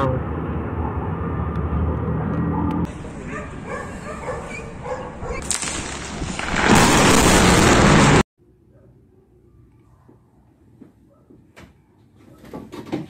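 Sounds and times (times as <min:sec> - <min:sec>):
dogs barking: 0:02.4 - 0:05.5
loud thunder peal: 0:05.5 - 0:08.2.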